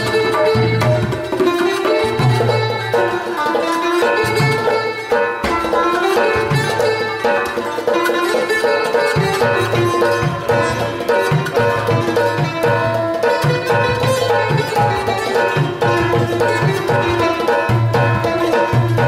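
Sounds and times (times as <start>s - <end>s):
hand percussion on clay pot: 0.0s - 19.0s
plucked lutes playing melody: 0.0s - 19.0s.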